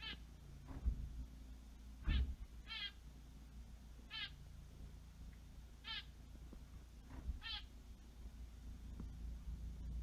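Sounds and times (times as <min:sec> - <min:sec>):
finch calling: 0:00.0 - 0:00.3, 0:02.0 - 0:03.0, 0:04.1 - 0:04.4, 0:05.8 - 0:06.2, 0:07.4 - 0:07.7.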